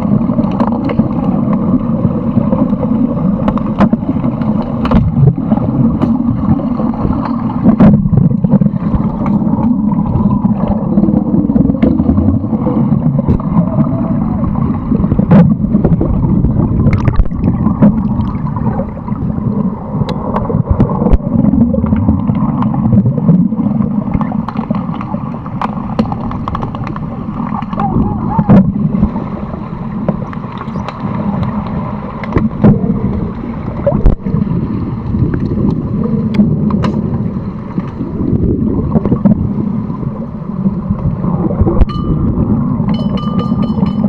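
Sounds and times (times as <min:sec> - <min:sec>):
underwater churning water and bubbles: 0:00.0 - 0:44.0.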